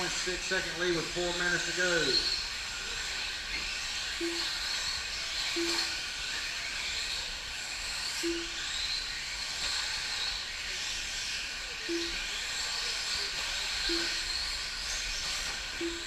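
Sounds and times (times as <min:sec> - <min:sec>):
rc car motor whine: 0:00.0 - 0:16.0
short beeps: 0:04.2 - 0:04.6, 0:05.6 - 0:06.0, 0:08.2 - 0:08.6, 0:11.9 - 0:12.2, 0:13.8 - 0:14.2, 0:15.8 - 0:16.0.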